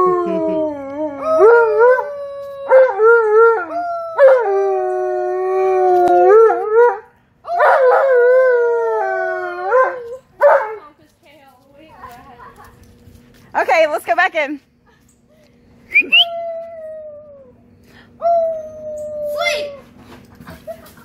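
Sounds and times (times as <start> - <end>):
girl howling: 0.0 - 6.7, 16.2 - 17.6, 18.2 - 19.9
dog howling: 0.0 - 10.2.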